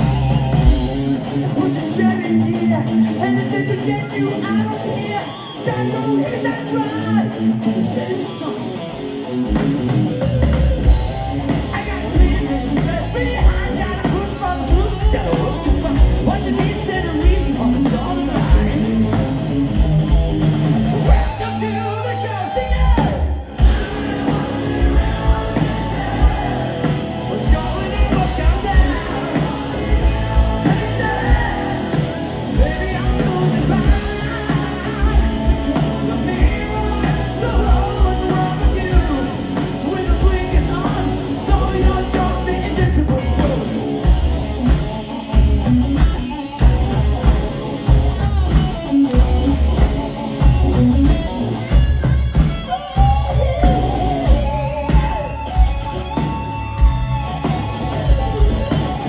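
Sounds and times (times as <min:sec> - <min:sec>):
metal band playing live: 0:00.0 - 0:59.0
man singing: 0:01.2 - 0:08.8, 0:11.6 - 0:19.4, 0:21.0 - 0:43.8.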